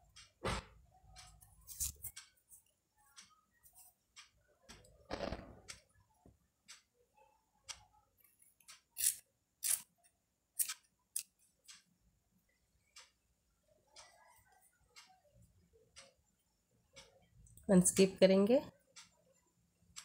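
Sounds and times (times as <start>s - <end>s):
scissors snipping yarn: 1.7s - 2.3s, 8.6s - 9.9s, 10.6s - 11.3s.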